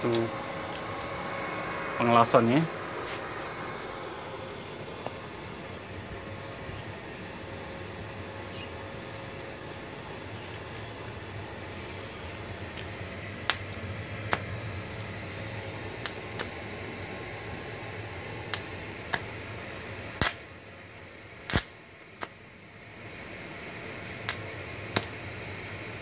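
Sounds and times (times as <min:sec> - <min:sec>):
welding arc hissing: 0:11.4 - 0:26.0
welding arc cracks: 0:11.8 - 0:14.6, 0:15.7 - 0:16.6, 0:18.4 - 0:19.4, 0:20.2 - 0:20.6, 0:21.4 - 0:22.4, 0:24.2 - 0:25.3.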